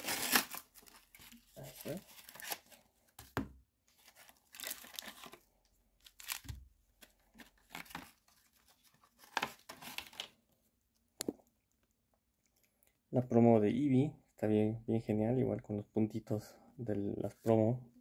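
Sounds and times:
blister packaging tearing: 0.0s - 2.8s, 4.1s - 5.4s.

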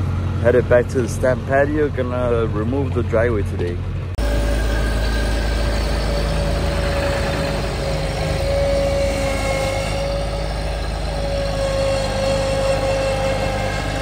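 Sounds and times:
diesel engine running: 0.0s - 14.0s
steady high whine: 3.8s - 14.0s.

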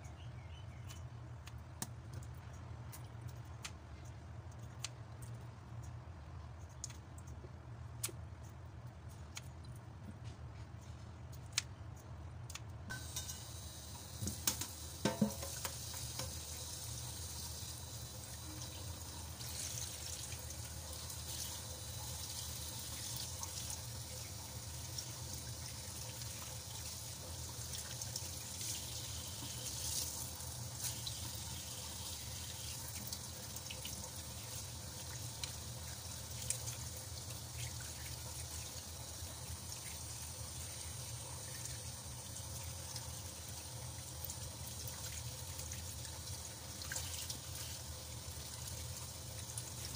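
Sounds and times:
tap water running into sink: 12.9s - 49.9s.

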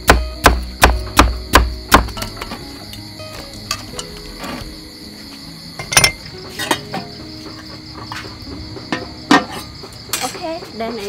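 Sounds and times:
crickets chirring: 0.0s - 11.0s
metal pot lid and utensils clanking: 3.7s - 4.6s, 5.8s - 7.1s, 8.9s - 10.4s.

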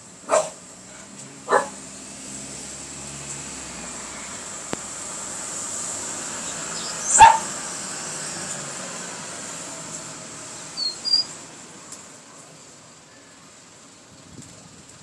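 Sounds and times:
sparrow chirps: 6.4s - 7.3s, 10.6s - 11.4s.

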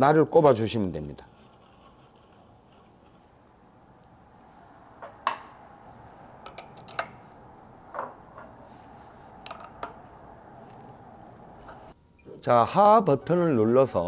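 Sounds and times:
metal spanners clinking: 6.4s - 8.7s.

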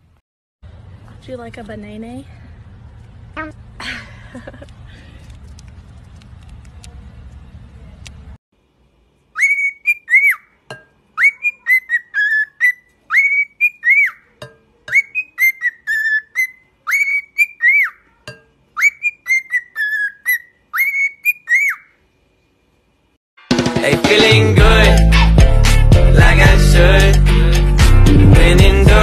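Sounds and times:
cockatiel whistling a tune: 9.4s - 10.5s, 11.2s - 14.2s, 14.9s - 18.0s, 18.8s - 21.9s.

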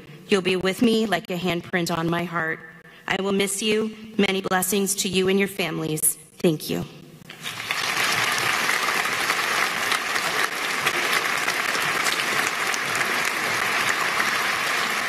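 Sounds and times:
large audience applauding: 7.3s - 15.0s.

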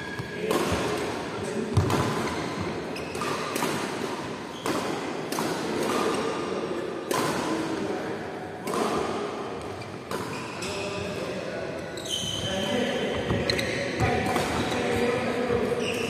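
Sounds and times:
racquet smacking shuttlecock: 3.1s - 6.4s.

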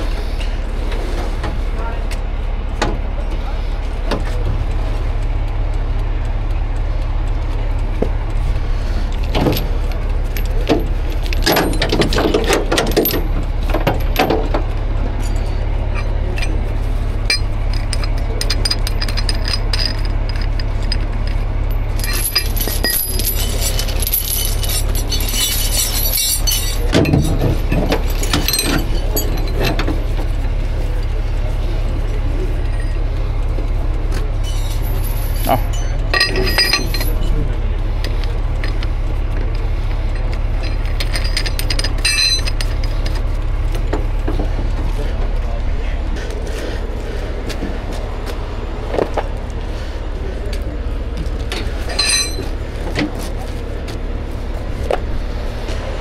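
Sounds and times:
vehicle engine idling: 0.0s - 56.0s
heavy chain clinking and rattling: 8.4s - 45.0s, 51.0s - 55.8s.

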